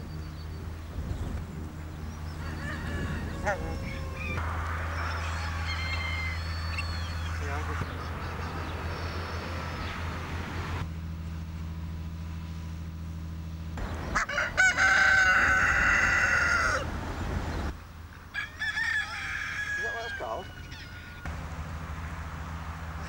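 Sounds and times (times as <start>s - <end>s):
fowl clucking and calling: 1.9s - 10.0s, 13.8s - 16.9s, 18.3s - 21.4s
rooster crowing: 2.0s - 10.2s, 14.1s - 17.0s, 18.3s - 21.6s.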